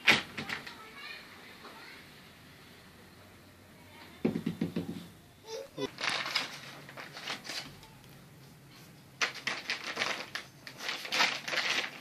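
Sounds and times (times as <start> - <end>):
plastic bag rustling: 5.8 - 7.8, 9.2 - 12.0.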